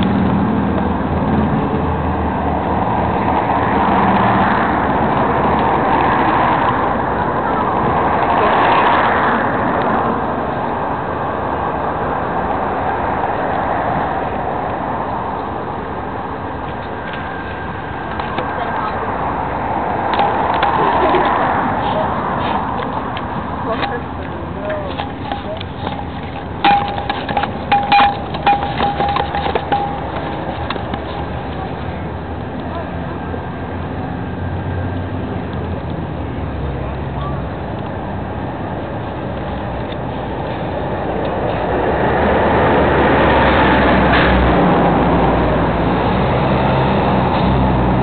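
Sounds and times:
outdoor background noise: 0:00.0 - 0:48.0
road traffic noise: 0:00.0 - 0:48.0
metallic clinks with ringing tone: 0:25.3 - 0:30.8.

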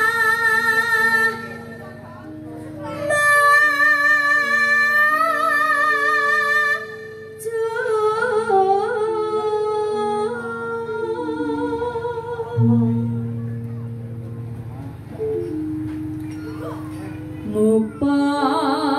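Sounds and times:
woman singing: 0:00.0 - 0:01.8, 0:02.8 - 0:13.6, 0:17.4 - 0:18.9
electronic keyboard: 0:00.0 - 0:18.9.

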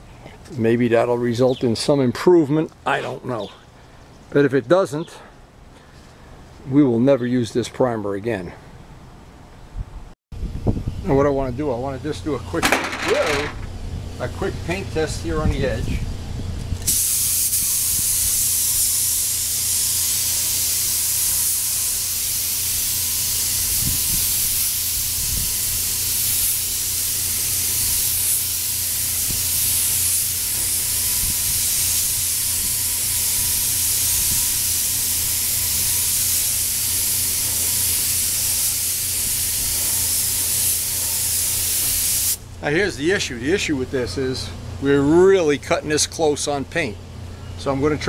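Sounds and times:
spray gun hissing: 0:16.9 - 0:42.4.

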